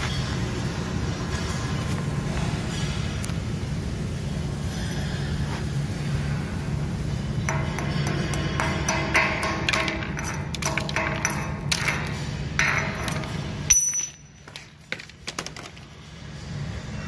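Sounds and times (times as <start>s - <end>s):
steady low hum: 0.0s - 17.0s
metal tapping with ringing ping: 13.7s - 14.4s.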